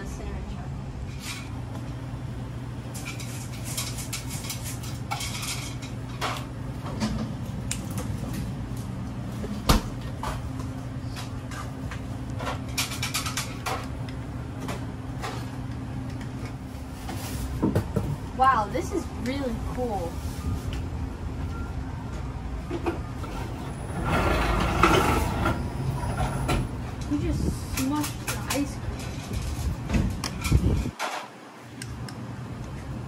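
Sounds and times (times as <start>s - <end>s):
utensils and containers clattering: 2.9s - 8.5s, 11.0s - 13.9s, 22.7s - 31.4s.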